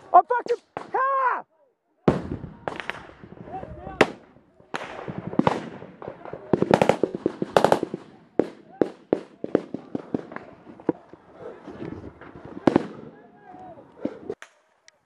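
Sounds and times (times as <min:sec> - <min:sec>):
small-arms gunfire: 0:04.0 - 0:10.5, 0:12.6 - 0:13.2.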